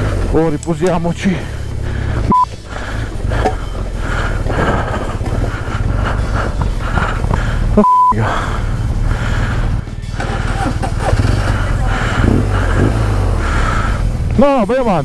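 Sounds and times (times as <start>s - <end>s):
motorcycle engine at low revs: 0.0s - 15.0s
short high beep: 2.3s - 2.5s, 7.8s - 8.2s.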